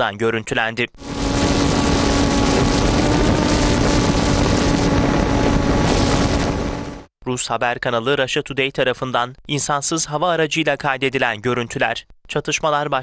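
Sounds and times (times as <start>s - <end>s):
drone propellers buzzing: 1.0s - 7.1s.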